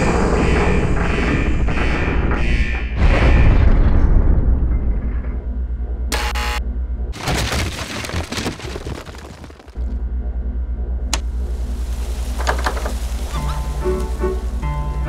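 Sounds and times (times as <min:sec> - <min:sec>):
deep boom: 0:03.0 - 0:06.0
short electronic buzz: 0:06.1 - 0:06.7.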